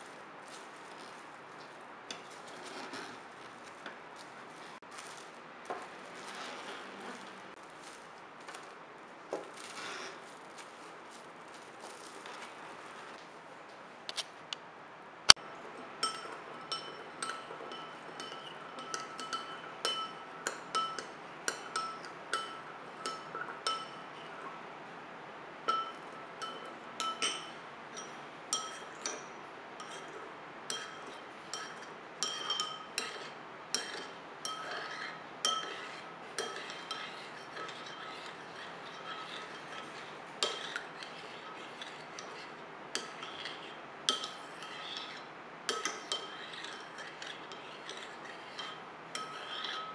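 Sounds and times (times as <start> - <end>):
metal spoon clinking in ceramic bowl: 16.0 - 24.2, 25.7 - 49.9.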